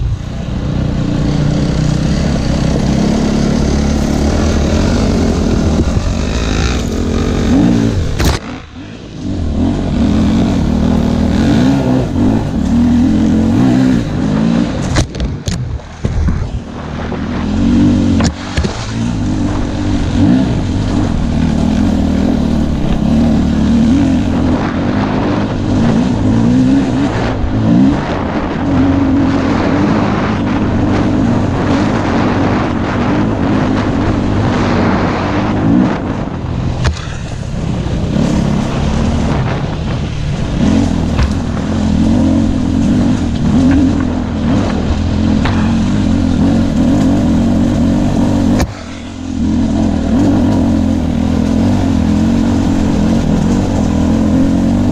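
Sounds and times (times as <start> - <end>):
motorcycle engine revving: 0.0 - 54.9
stones knocking under tyres: 41.1 - 41.6.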